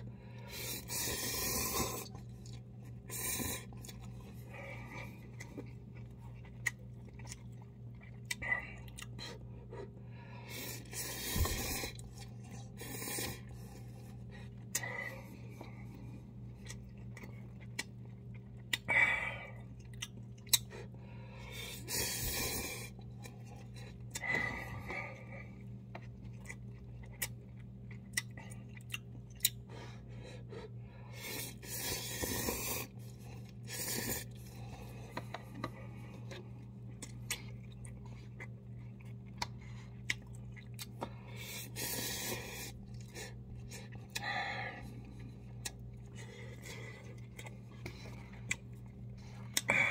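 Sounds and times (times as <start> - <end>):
noodle slurping: 0.5 - 5.5
chewing and mouth smacks: 0.8 - 18.9, 19.6 - 21.0, 22.8 - 29.7, 31.2 - 49.8.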